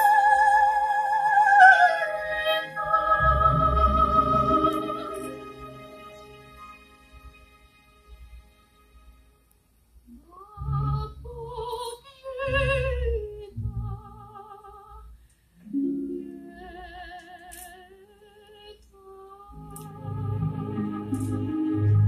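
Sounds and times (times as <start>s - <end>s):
woman singing opera: 0.0s - 5.5s, 10.1s - 22.0s
quiet instrumental accompaniment: 1.8s - 14.2s, 19.5s - 22.0s.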